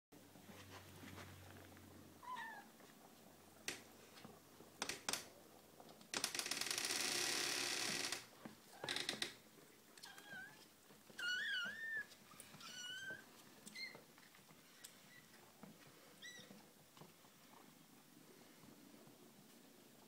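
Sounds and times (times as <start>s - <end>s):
kittens meowing softly: 2.2s - 2.8s, 10.0s - 14.1s, 16.2s - 16.6s.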